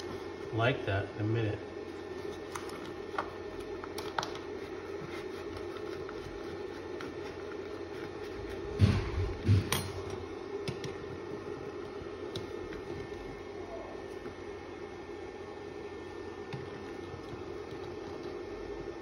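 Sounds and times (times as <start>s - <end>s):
steady low hum: 0.0s - 19.0s
tape clicking and crinkling: 1.9s - 8.8s.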